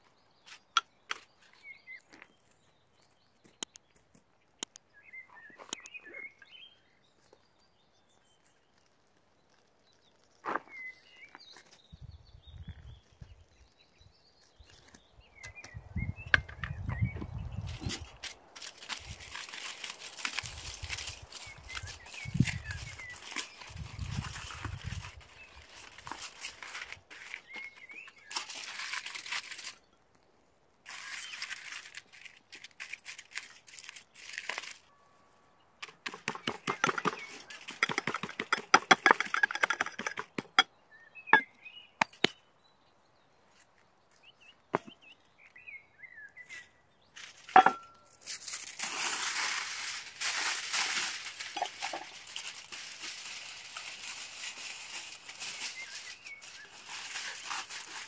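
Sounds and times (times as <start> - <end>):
aluminium foil crinkling: 17.6 - 29.9, 30.8 - 34.9, 47.2 - 58.0
foil torn off a roll: 17.7 - 29.9, 30.9 - 34.9, 48.2 - 58.0
sharp clicks and knocks: 37.8 - 40.7.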